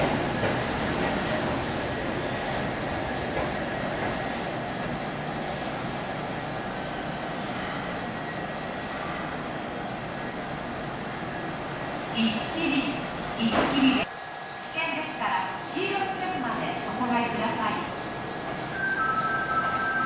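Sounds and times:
electric train rumble: 0.0s - 20.0s
short high hissing: 5.4s - 6.3s, 7.3s - 8.1s, 8.7s - 9.5s.

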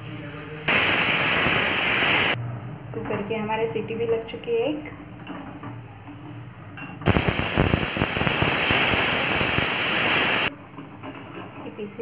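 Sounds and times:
pressure cooker steam hiss: 0.0s - 2.4s, 7.1s - 10.5s.

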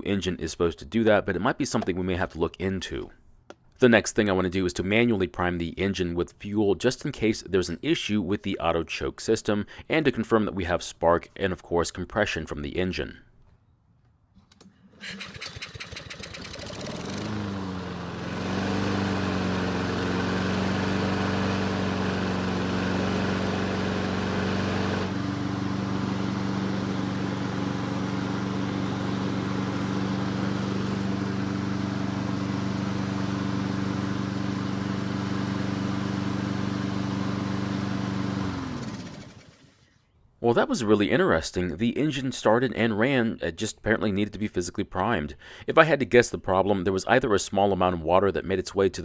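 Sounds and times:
lawn mower engine starting and running: 14.4s - 40.1s.

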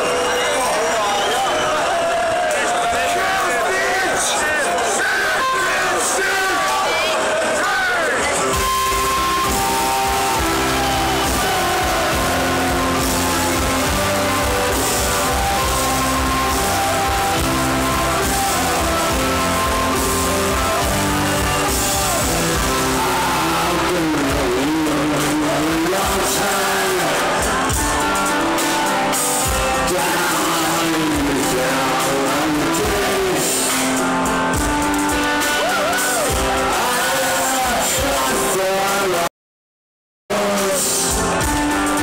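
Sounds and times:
live rock band playing ballad: 8.4s - 39.2s, 40.3s - 42.0s.

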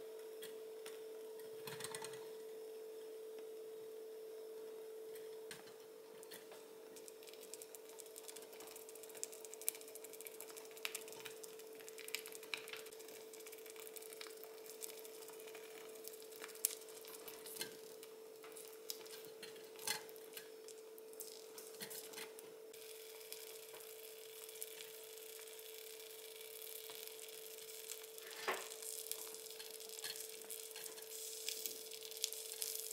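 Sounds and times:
faint steady hum: 0.0s - 32.9s
sauce popping and crackling: 7.0s - 22.2s, 22.8s - 32.9s.

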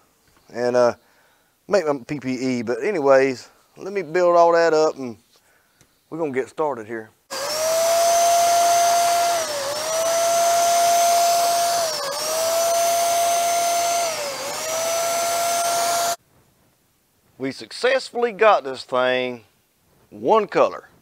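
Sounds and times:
paint sprayer turbine whining: 7.3s - 16.2s.

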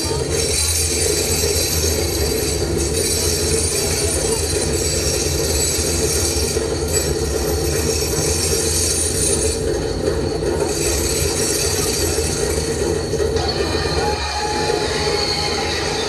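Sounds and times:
industrial machine noise over loudspeakers: 0.0s - 16.0s
high-pitched whines: 13.3s - 16.0s.

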